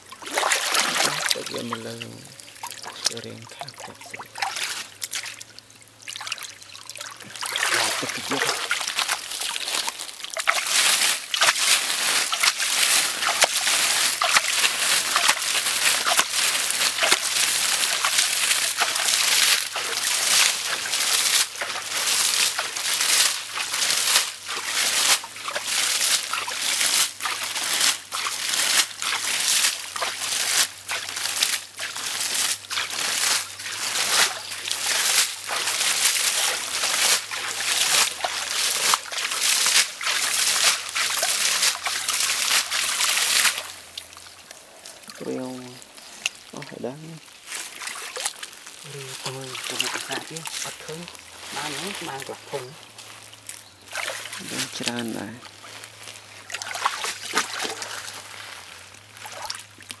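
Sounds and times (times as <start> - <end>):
footsteps rustling over dry leaves: 0.0 - 60.0
footsteps sloshing through muddy water: 0.0 - 60.0.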